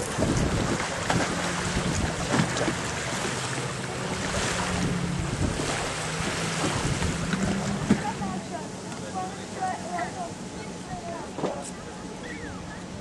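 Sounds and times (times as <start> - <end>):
wind buffeting microphone: 0.0 - 3.2, 4.0 - 8.4.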